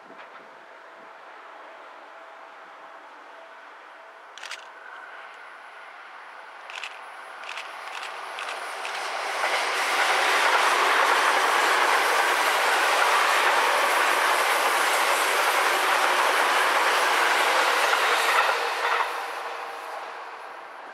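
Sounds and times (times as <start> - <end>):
electric train passing: 0.0 - 20.9.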